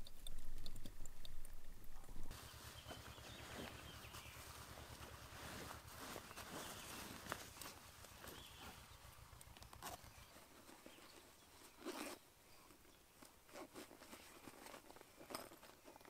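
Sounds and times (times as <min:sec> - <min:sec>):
footsteps crackling on dry grass: 0:02.2 - 0:12.2
nylon gear rustling: 0:02.3 - 0:16.0.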